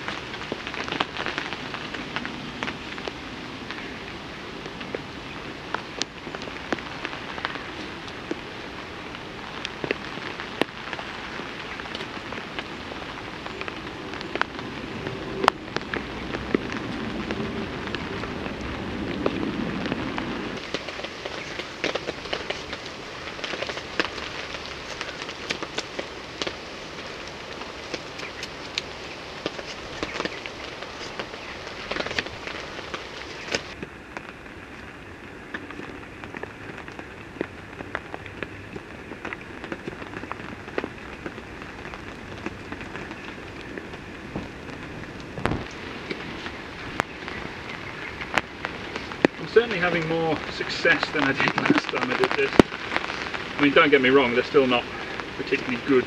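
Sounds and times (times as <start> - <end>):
rain on a tarp: 0.0 - 56.0.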